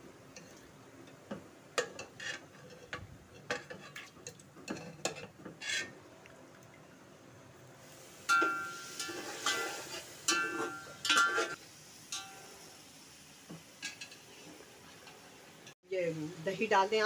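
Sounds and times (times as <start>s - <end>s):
metal spoon clinking on pot: 8.3s - 9.7s, 10.3s - 12.5s.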